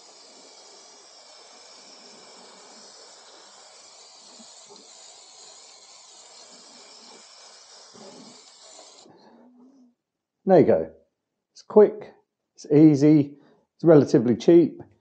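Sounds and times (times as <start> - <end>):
spray paint can hissing: 0.0 - 9.2.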